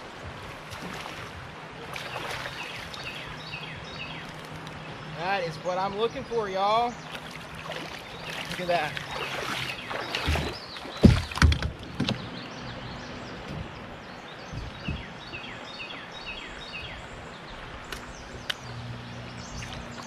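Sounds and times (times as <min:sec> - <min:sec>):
bird chirping: 0:02.0 - 0:20.0
knocks against a kayak: 0:10.1 - 0:12.3, 0:14.4 - 0:15.5.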